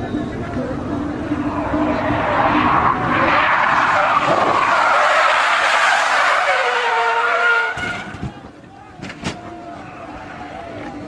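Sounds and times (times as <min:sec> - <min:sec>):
car tyres screeching: 0:00.0 - 0:10.4
high tyre squeal: 0:01.0 - 0:08.2.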